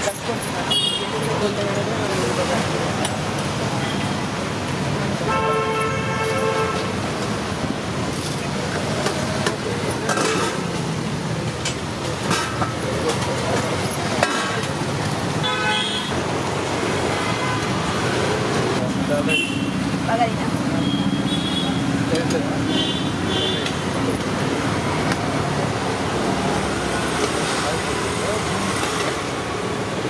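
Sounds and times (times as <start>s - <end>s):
traffic hum: 0.0s - 30.0s
vehicle horn honking: 5.3s - 6.8s, 15.4s - 16.1s.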